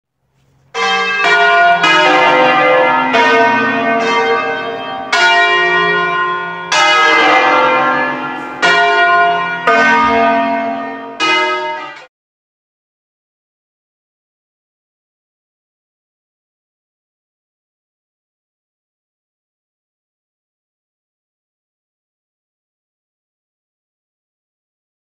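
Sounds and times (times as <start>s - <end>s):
church bells ringing: 0.7s - 12.1s.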